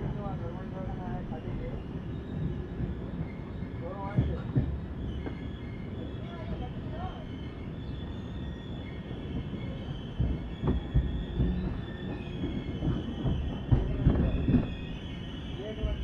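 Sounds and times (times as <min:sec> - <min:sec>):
train rumbling on track: 0:00.0 - 0:16.0.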